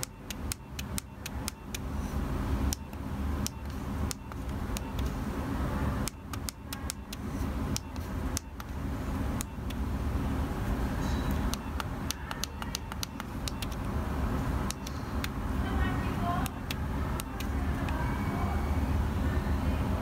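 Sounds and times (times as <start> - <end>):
phone key clicks: 0.0 - 1.9, 2.7 - 5.2, 6.0 - 8.8, 9.4 - 9.8, 11.3 - 14.0, 14.6 - 15.4, 16.4 - 18.0.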